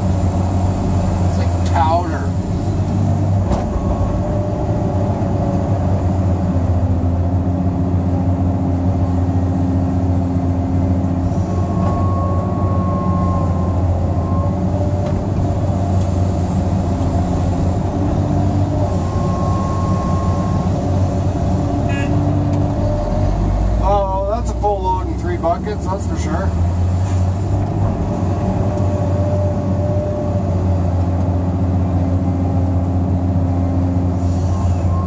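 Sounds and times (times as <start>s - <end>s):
excavator diesel engine humming: 0.0s - 35.0s.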